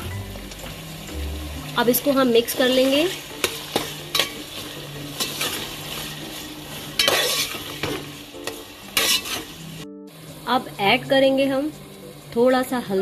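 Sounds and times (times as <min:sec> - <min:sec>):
meat sizzling in hot oil: 0:00.0 - 0:13.0
metal spoon scraping pot: 0:07.0 - 0:09.6.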